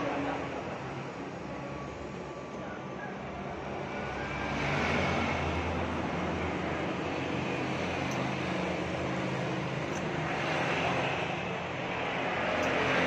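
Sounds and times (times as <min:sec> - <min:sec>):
road noise: 0:00.0 - 0:13.0
vehicle engines humming: 0:00.0 - 0:13.0.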